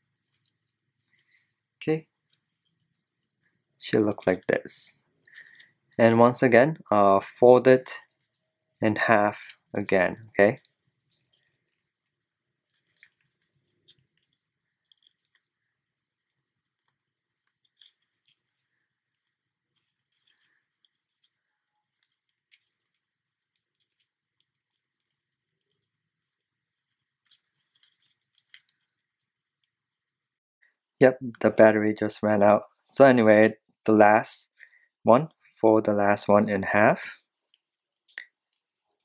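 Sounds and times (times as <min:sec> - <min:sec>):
paper crinkling while folded: 0:09.2 - 0:15.6, 0:16.2 - 0:29.9.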